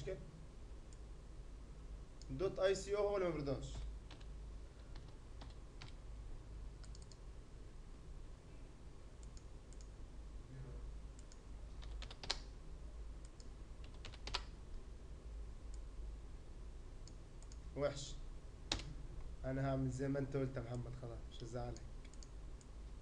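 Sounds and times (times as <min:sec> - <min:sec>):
low steady hum: 0:00.0 - 0:23.0
computer keyboard keystrokes: 0:03.7 - 0:06.0, 0:06.8 - 0:07.2, 0:11.2 - 0:12.5, 0:13.3 - 0:14.6
mouse clicks: 0:06.8 - 0:07.2, 0:09.2 - 0:09.9, 0:21.7 - 0:22.7.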